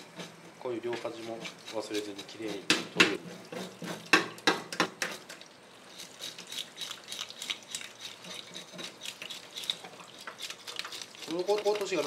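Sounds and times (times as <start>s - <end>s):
scraper rasping fish scales: 0.0s - 2.7s, 5.0s - 12.0s.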